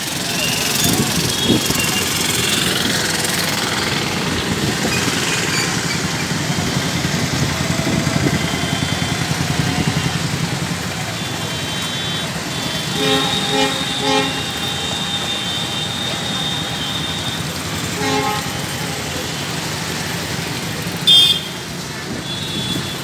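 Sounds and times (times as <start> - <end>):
traffic rush: 0.0 - 23.0
vehicle horn short beeps: 11.2 - 18.9, 21.0 - 21.6, 22.2 - 23.0.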